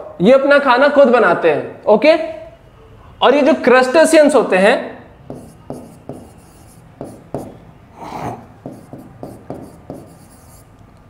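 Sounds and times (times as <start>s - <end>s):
pen scratching on a board: 5.2s - 7.6s, 8.6s - 10.7s
pen tapping on a board: 5.3s - 7.6s, 8.6s - 10.6s.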